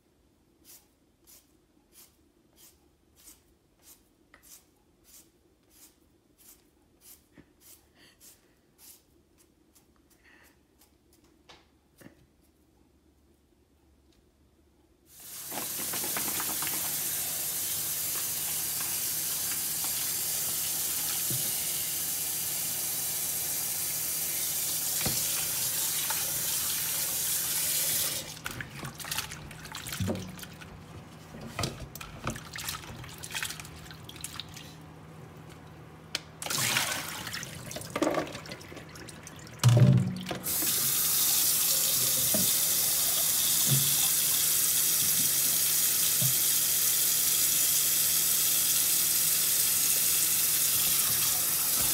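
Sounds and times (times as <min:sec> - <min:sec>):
tap running into bowl: 0:15.4 - 0:17.4
water splashes: 0:36.4 - 0:40.3.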